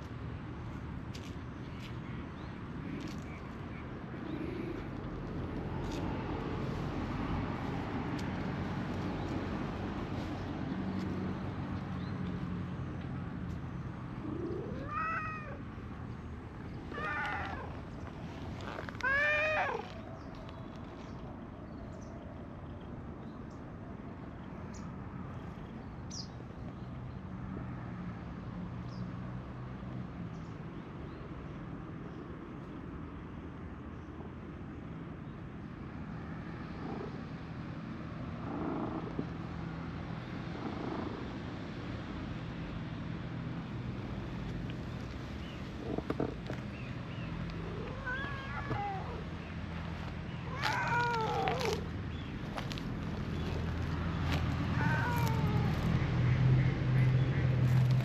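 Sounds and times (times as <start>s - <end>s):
cat meowing: 19.0s - 19.9s, 47.6s - 49.2s, 50.4s - 51.9s, 54.8s - 55.9s.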